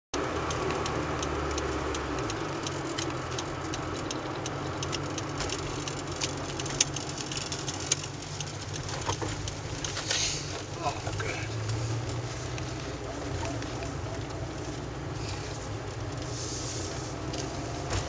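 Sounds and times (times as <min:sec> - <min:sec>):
car engine and road noise: 0:00.1 - 0:18.0
light ticks: 0:00.2 - 0:15.0, 0:15.8 - 0:16.4
sharp clicks: 0:00.4 - 0:10.6.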